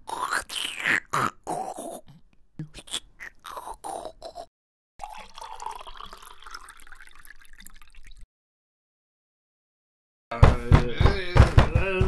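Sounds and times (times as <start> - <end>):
wet slurping and gobbling: 0.0 - 8.3.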